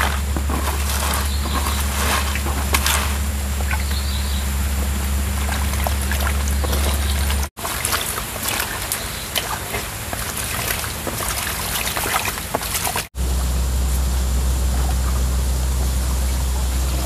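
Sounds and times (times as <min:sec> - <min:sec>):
hands splashing greens in water: 0:00.0 - 0:13.1
stream water running: 0:00.0 - 0:17.0.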